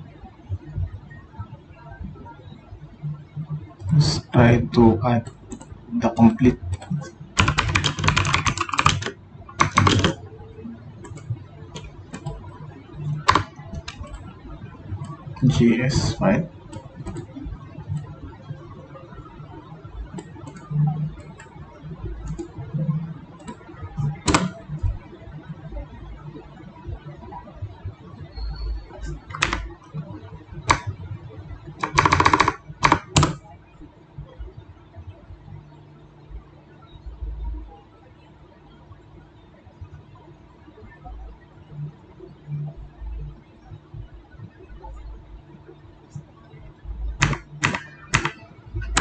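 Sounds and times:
typing on computer keyboard: 6.7 - 10.2, 13.2 - 14.2, 16.7 - 17.3, 23.4 - 24.6, 29.0 - 29.7, 30.6 - 30.9, 31.8 - 33.4, 47.1 - 49.0.

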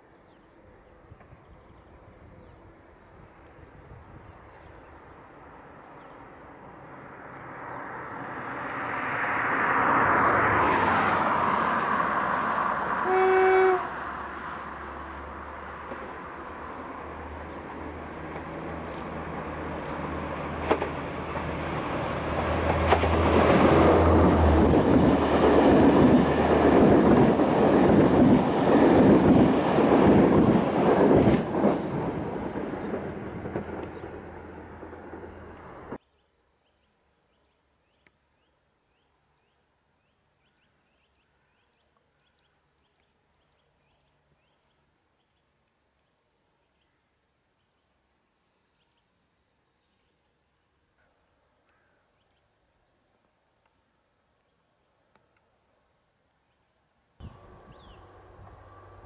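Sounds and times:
train horn blast: 13.0 - 14.2.

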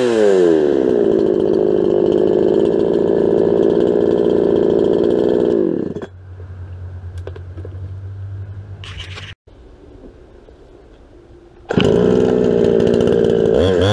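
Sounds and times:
chainsaw running: 0.0 - 6.2, 11.7 - 13.9.

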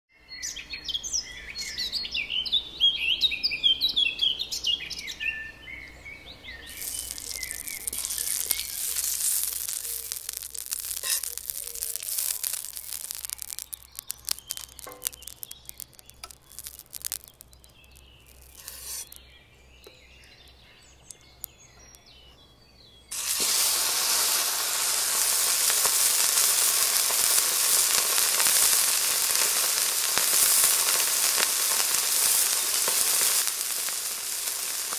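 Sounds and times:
birds chirping: 0.3 - 34.9
butter sizzling on griddle: 6.6 - 19.2, 23.1 - 34.9
steak frying sizzle: 6.6 - 19.2, 23.1 - 34.9.

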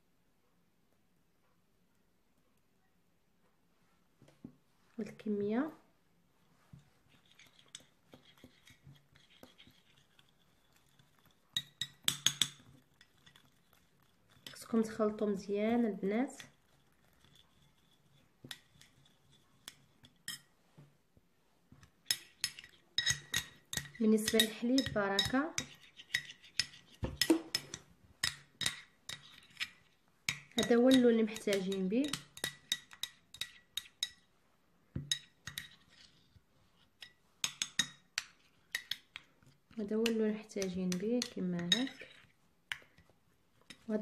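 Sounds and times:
metal spoon clinking glass bowl: 7.2 - 13.6, 22.0 - 34.3, 40.0 - 42.8.

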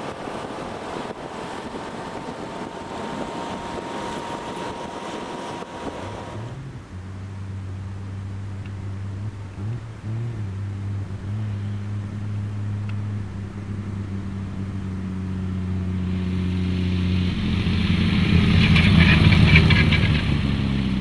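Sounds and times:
sports car engine passing: 0.0 - 21.0.

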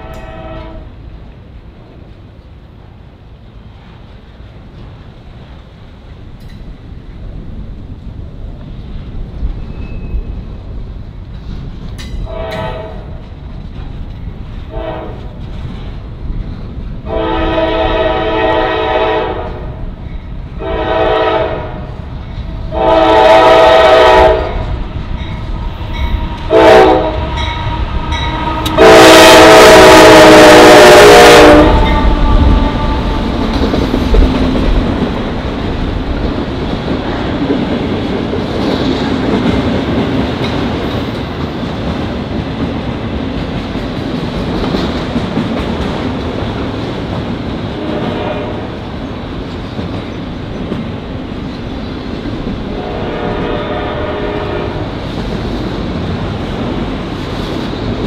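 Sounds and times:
locomotive air horn blasts: 0.0 - 0.9, 12.2 - 13.1, 14.7 - 15.3, 17.1 - 19.7, 20.6 - 21.9, 22.7 - 24.7, 25.8 - 33.5, 47.8 - 48.7, 52.7 - 54.9
train cars rumbling by: 0.0 - 58.0.

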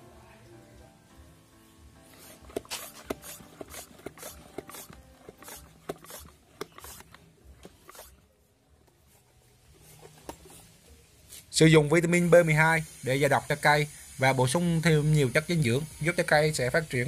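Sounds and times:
hand pump strokes hissing and clicking: 2.1 - 8.2.

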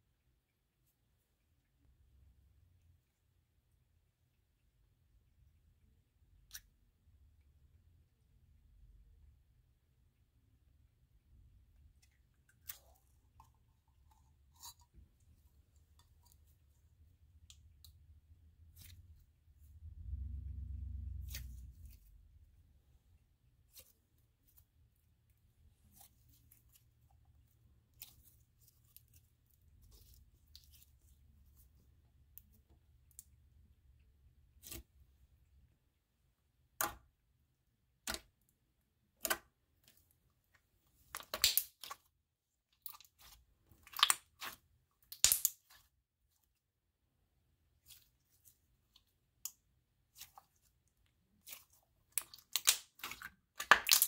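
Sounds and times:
slime popping and crackling: 41.1 - 42.0, 42.8 - 45.8, 51.4 - 54.0.

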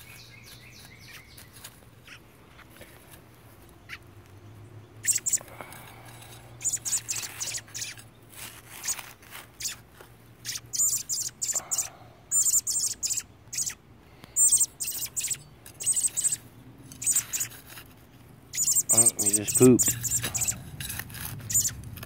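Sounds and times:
young bird chirping: 0.0 - 2.7, 3.5 - 5.8, 6.4 - 17.6, 18.5 - 20.6, 21.4 - 21.8
metal trowel scraping soil: 15.6 - 18.1, 18.7 - 22.0.

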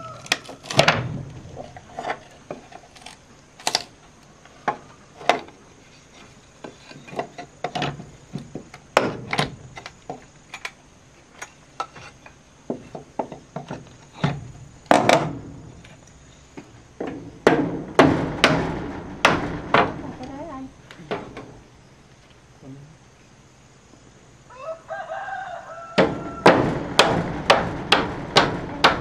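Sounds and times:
wood knocking on wood: 17.0 - 20.0, 26.0 - 29.0.

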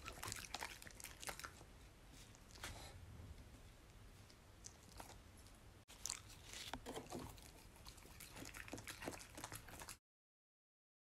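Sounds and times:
dog chewing crunchy food: 4.6 - 10.0.

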